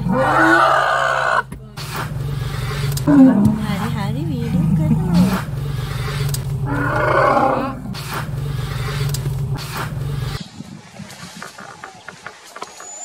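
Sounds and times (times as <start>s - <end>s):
elephant roaring: 0.0s - 10.4s
jeep engine idling: 0.0s - 10.4s.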